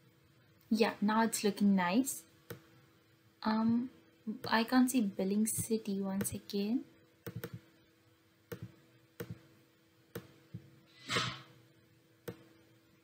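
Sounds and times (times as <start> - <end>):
faint steady hum: 0.0 - 13.0
computer mouse clicking: 7.2 - 7.6, 8.5 - 9.4.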